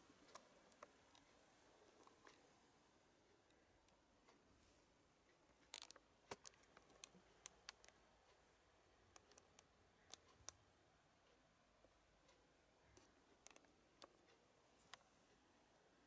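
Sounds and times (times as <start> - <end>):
faint small clicks: 0.0 - 2.5, 5.2 - 15.5.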